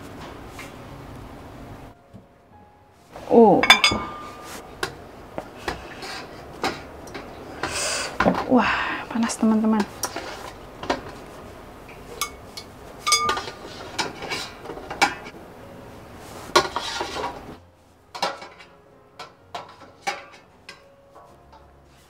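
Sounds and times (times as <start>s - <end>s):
metal tongs clinking on pot: 3.6s - 4.6s, 6.6s - 7.3s, 12.2s - 15.3s, 18.2s - 20.9s
steady steam hiss: 5.4s - 9.4s.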